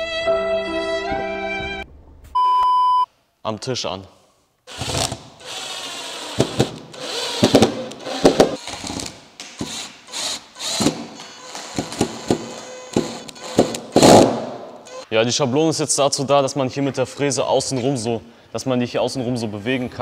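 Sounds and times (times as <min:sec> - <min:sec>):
cordless drill whining: 0:04.7 - 0:14.2, 0:14.8 - 0:15.0.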